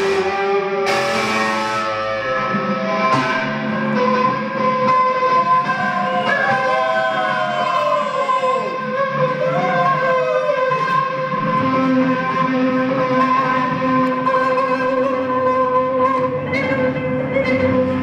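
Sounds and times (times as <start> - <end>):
drum kit playing: 0.0 - 2.2, 3.0 - 4.2
electric guitar: 0.0 - 18.0.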